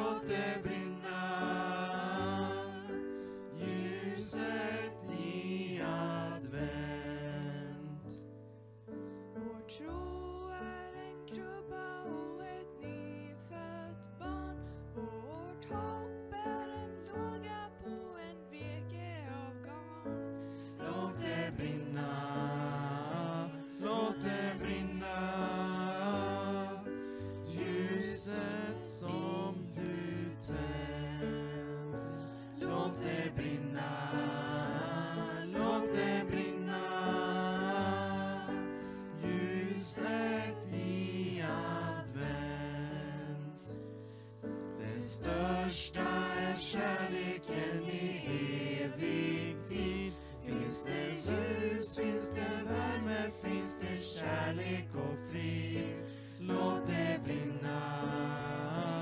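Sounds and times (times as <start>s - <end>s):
group singing in harmony: 0.0s - 8.3s, 20.6s - 43.8s, 44.7s - 59.0s.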